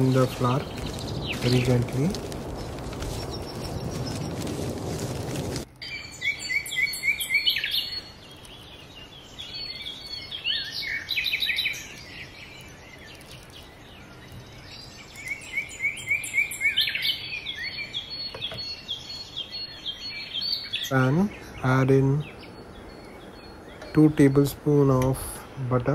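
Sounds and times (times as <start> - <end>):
small birds chirping: 0.0 - 25.9.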